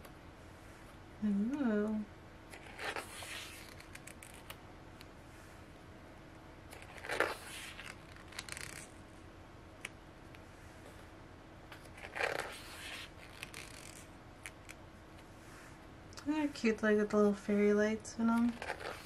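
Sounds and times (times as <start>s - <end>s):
paper pages rustling: 2.6s - 4.5s, 6.8s - 8.9s, 11.8s - 14.6s, 18.4s - 19.0s.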